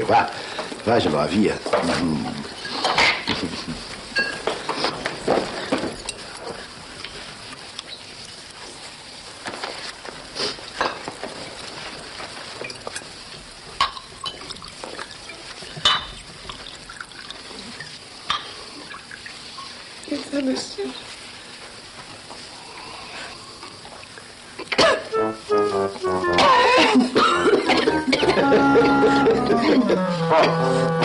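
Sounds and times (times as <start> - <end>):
faint background hiss: 0.0 - 31.0
drinking glasses clinking: 4.2 - 4.5.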